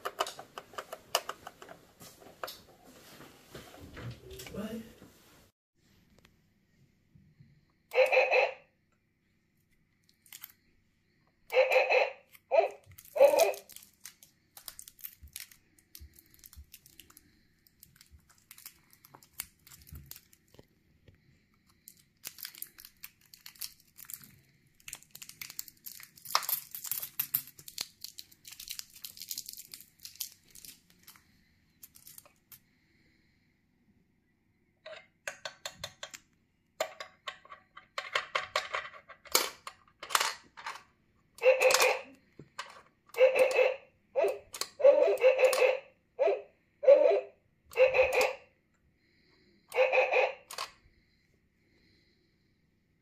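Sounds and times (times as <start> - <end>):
crinkly rustling: 12.8 - 20.8, 21.7 - 32.6.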